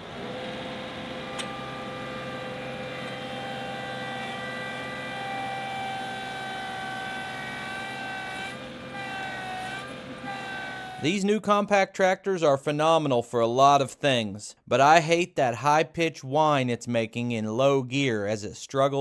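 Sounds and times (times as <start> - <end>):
tractor engine whining under load: 0.0 - 11.2.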